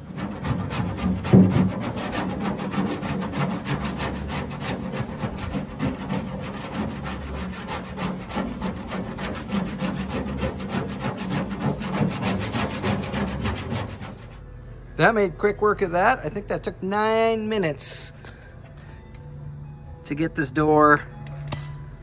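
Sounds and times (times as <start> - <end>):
scraper rasping on metal: 0.0 - 14.4.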